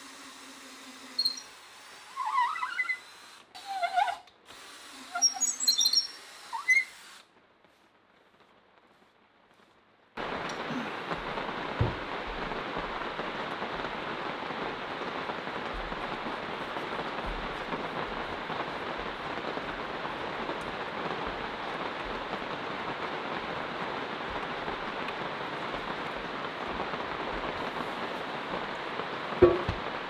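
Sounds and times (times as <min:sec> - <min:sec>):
rain on a roof: 0:06.6 - 0:30.0.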